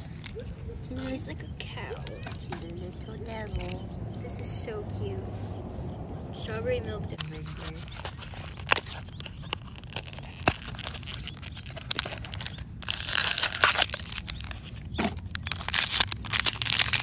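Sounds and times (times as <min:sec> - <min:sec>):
foil bag crinkling: 0:00.0 - 0:03.8, 0:07.1 - 0:17.0.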